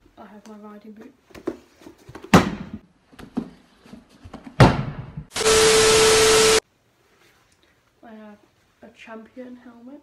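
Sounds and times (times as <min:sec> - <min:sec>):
static hiss with steady tone: 0:05.3 - 0:10.0.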